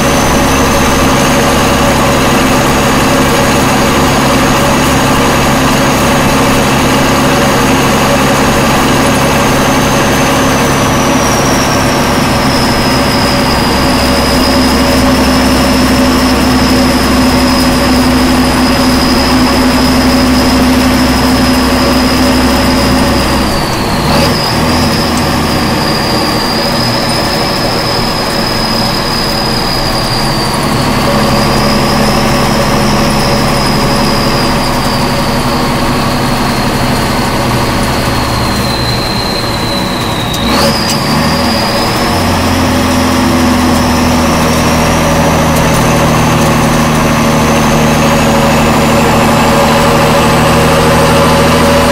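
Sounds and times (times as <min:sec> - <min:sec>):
truck engine with high whine: 0:00.0 - 0:51.9.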